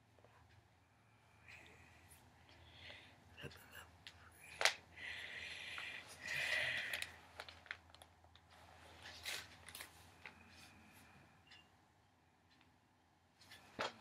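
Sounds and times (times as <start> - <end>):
magazine paper rustling: 6.5 - 10.4.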